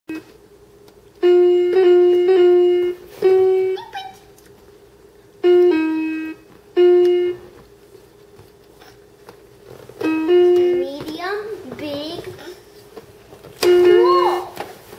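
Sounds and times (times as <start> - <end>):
electronic toy piano notes: 1.2 - 4.1, 5.4 - 7.5, 10.0 - 11.4.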